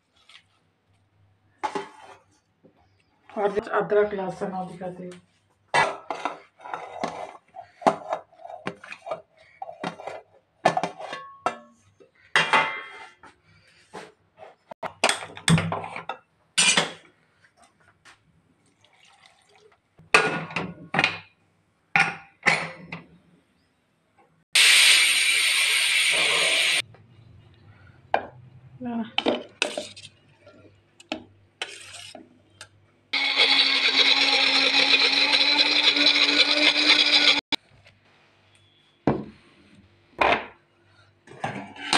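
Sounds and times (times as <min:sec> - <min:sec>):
pressure cooker whistle hissing: 0:24.6 - 0:26.8.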